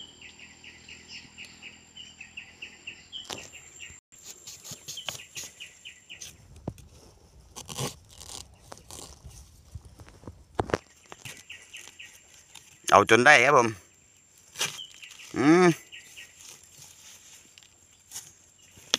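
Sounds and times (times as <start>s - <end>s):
knife scraping into dry soil: 4.2s - 12.9s, 14.4s - 15.4s, 16.0s - 18.9s
leaf litter rustling and crunching: 6.9s - 12.9s, 14.3s - 18.9s.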